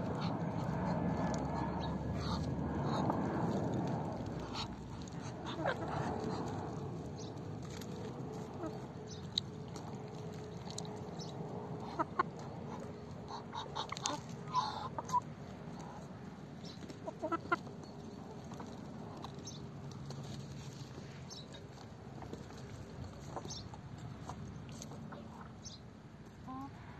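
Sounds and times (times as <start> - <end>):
hen clucking: 0.0 - 7.7, 8.4 - 9.9, 10.7 - 17.8, 23.2 - 26.9.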